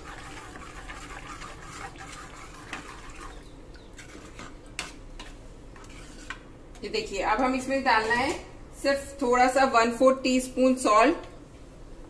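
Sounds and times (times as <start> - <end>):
spoon scraping in gravy: 0.0 - 6.5.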